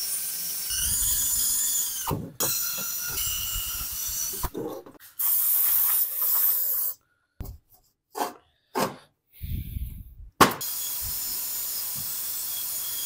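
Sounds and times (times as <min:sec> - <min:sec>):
drill with wire brush scrubbing: 0:00.0 - 0:07.0, 0:10.6 - 0:13.0.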